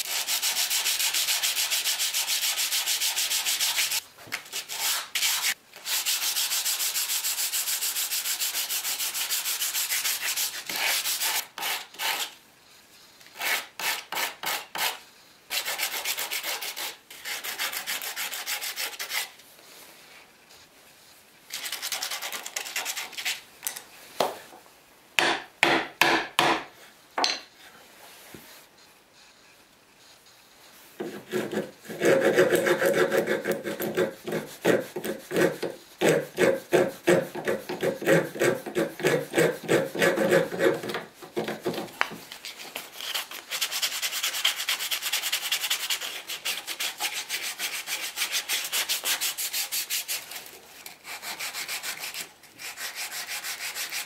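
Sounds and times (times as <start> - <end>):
wood rubbed on sandpaper: 0.0 - 4.0, 4.6 - 12.3, 13.4 - 19.4, 30.0 - 40.9, 43.0 - 50.4, 51.0 - 54.0
file rasping on wood: 31.0 - 41.9.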